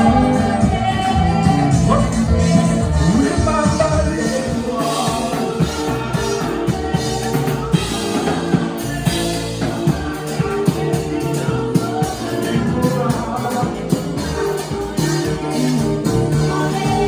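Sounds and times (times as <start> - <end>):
church band music: 0.0 - 17.0
drum kit beat: 0.0 - 17.0.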